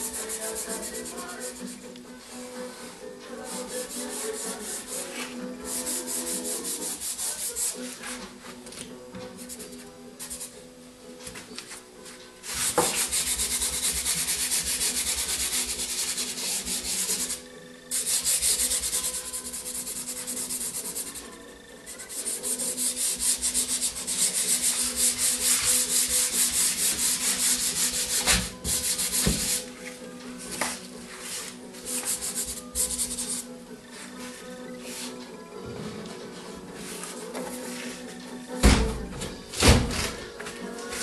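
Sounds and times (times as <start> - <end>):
pastel rubbing on paper: 0.0 - 1.8, 3.5 - 8.2, 9.4 - 10.6, 12.4 - 29.7, 31.1 - 33.5.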